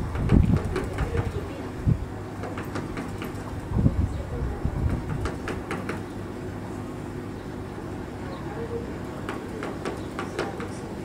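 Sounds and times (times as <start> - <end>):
low background rumble: 0.0 - 11.0
bird beak tapping on car roof: 2.4 - 3.5, 4.9 - 6.2.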